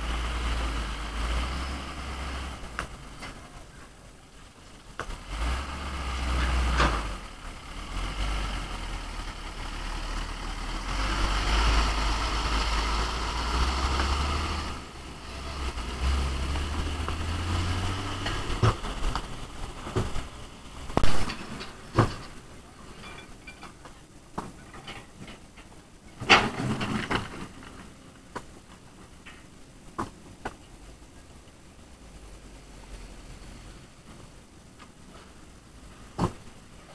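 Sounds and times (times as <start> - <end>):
diesel truck engine revving: 0.0 - 3.4, 5.0 - 21.2.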